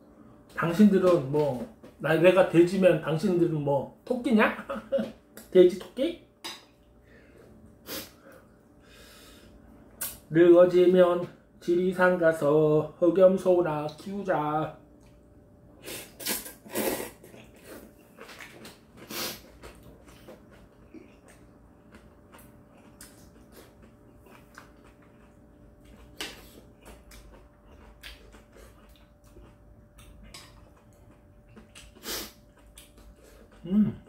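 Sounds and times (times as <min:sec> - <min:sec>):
person slurping noodles: 0:15.8 - 0:17.9, 0:19.0 - 0:19.5.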